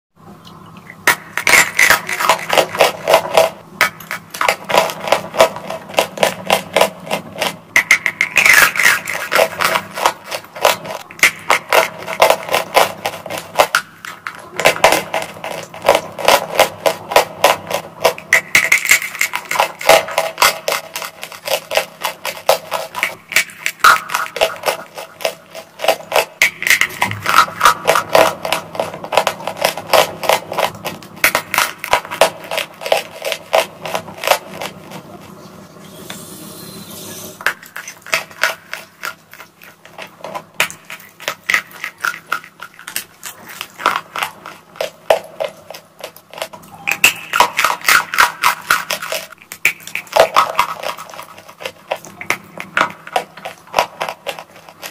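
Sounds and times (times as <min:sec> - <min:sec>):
chalk being bitten and chewed: 0:47.3 - 0:54.9.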